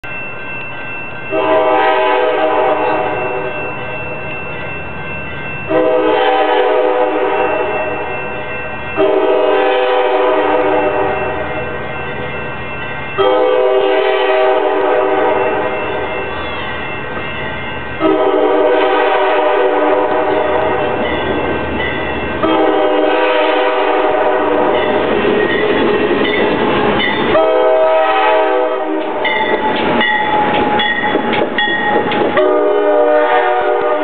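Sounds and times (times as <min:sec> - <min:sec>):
locomotive horn blasts: 0:01.3 - 0:03.5, 0:05.7 - 0:08.0, 0:09.0 - 0:11.3, 0:13.2 - 0:15.8, 0:18.0 - 0:20.8, 0:22.4 - 0:24.9, 0:27.3 - 0:29.4, 0:32.4 - 0:34.0.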